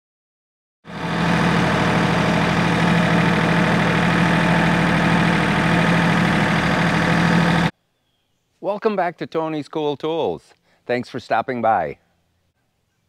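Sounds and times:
tractor diesel engine running: 0:00.9 - 0:07.7.

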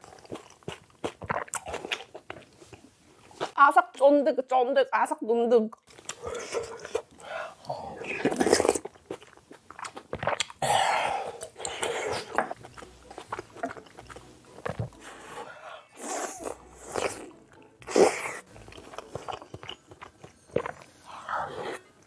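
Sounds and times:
chewing and biting: 0:00.0 - 0:03.5, 0:05.8 - 0:10.6, 0:11.3 - 0:22.0
wet mouth sounds: 0:05.7 - 0:22.0.

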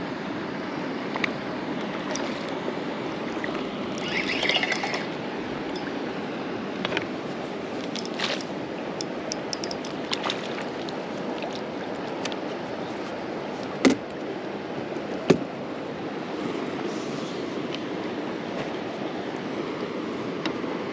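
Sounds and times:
steady wash of water: 0:00.1 - 0:20.9
small clicks: 0:07.9 - 0:10.0.

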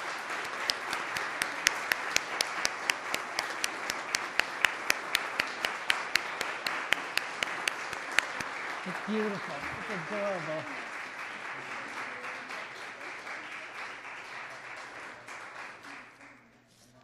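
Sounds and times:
audience applauding: 0:00.0 - 0:16.6
close person clapping: 0:00.0 - 0:16.8.

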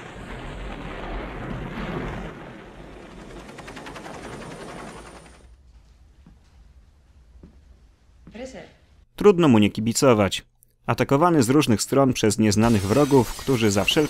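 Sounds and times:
big rumbling explosion: 0:00.0 - 0:04.9.

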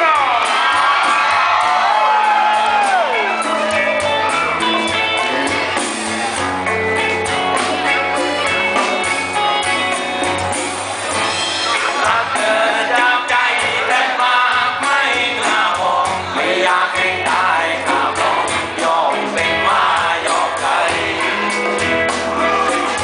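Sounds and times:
live band playing: 0:00.0 - 0:23.0
person singing: 0:11.7 - 0:23.0.

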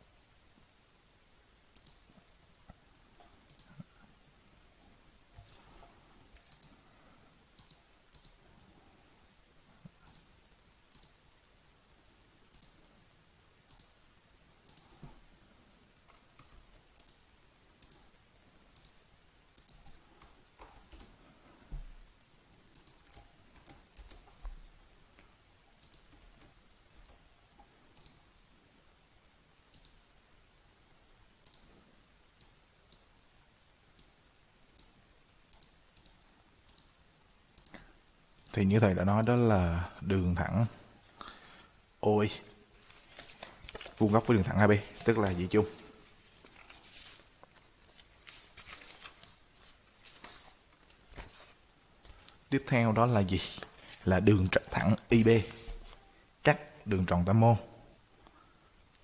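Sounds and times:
computer mouse clicks: 0:01.7 - 0:02.1, 0:03.3 - 0:03.9, 0:06.4 - 0:06.8, 0:07.6 - 0:08.4, 0:09.8 - 0:10.3, 0:10.9 - 0:11.2, 0:12.5 - 0:12.8, 0:13.7 - 0:14.0, 0:14.6 - 0:14.9, 0:16.0 - 0:17.2, 0:17.8 - 0:18.1, 0:18.7 - 0:21.2, 0:22.7 - 0:24.6, 0:25.8 - 0:28.2, 0:29.7 - 0:30.0, 0:31.4 - 0:31.7, 0:32.4 - 0:33.1, 0:33.9 - 0:37.0, 0:37.6 - 0:38.6.

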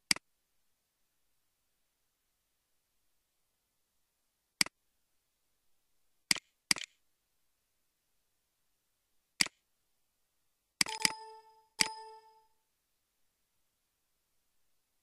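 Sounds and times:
computer mouse clicks: 0:06.3 - 0:07.0, 0:09.4 - 0:09.6, 0:10.8 - 0:12.4.

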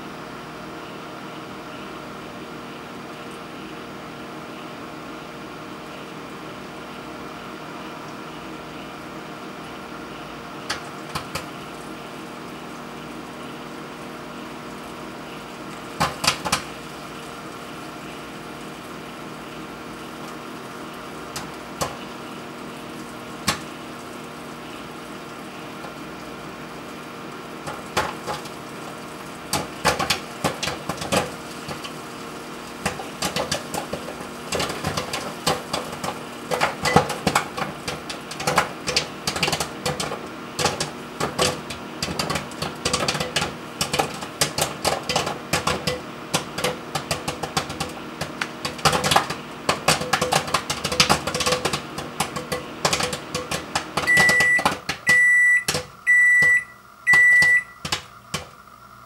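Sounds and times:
microwave oven humming: 0:00.0 - 0:59.0
popcorn popping: 0:10.5 - 0:58.6
microwave beeps: 0:36.5 - 0:37.3, 0:53.4 - 0:58.5.

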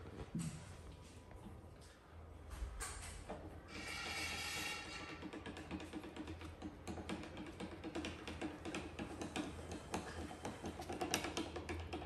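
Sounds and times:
stirrer clicking against cup: 0:04.6 - 0:12.0.

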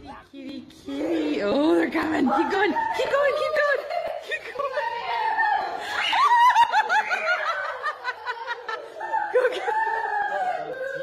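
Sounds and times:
high-pitched human laughter: 0:03.0 - 0:11.0.

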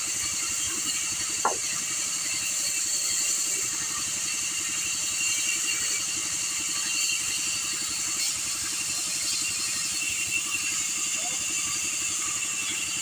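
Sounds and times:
bandsaw cutting wood: 0:01.4 - 0:01.7.

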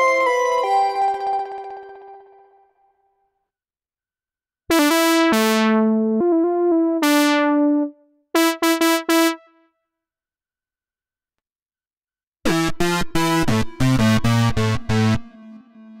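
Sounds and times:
bright buzzy synthesizer notes: 0:04.7 - 0:09.6.

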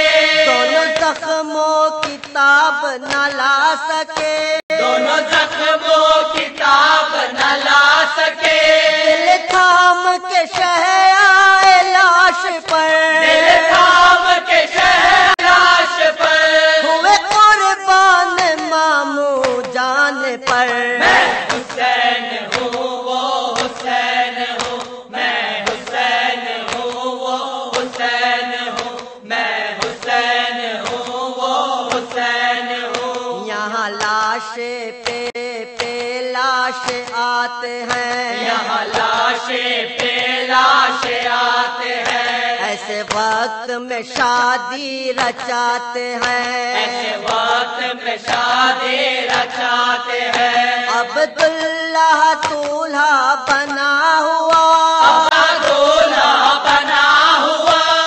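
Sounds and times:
person chanting an elegy: 0:04.2 - 0:19.5, 0:20.7 - 0:34.4, 0:46.6 - 0:58.0.

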